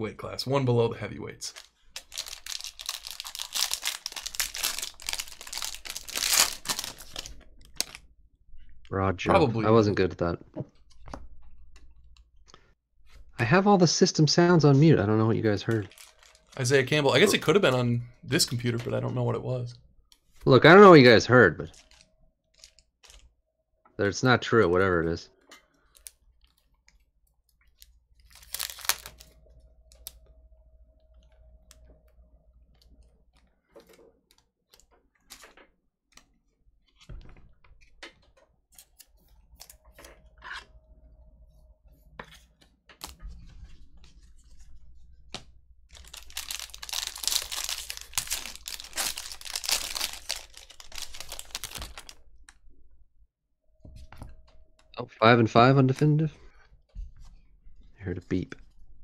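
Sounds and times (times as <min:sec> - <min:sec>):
foil wrapper tearing and crinkling: 0:01.5 - 0:08.0, 0:15.8 - 0:17.3, 0:28.2 - 0:29.3, 0:45.9 - 0:52.2.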